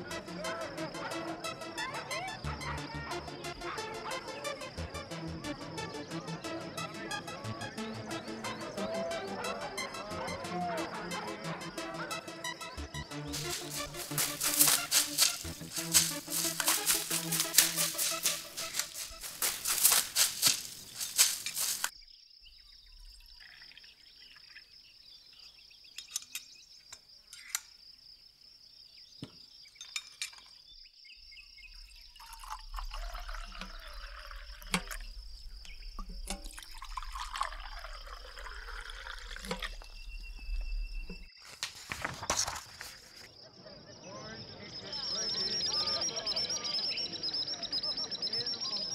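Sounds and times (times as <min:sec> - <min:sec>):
shaker rattling in music: 0:13.1 - 0:21.9
liquid pouring and dripping: 0:32.2 - 0:41.3.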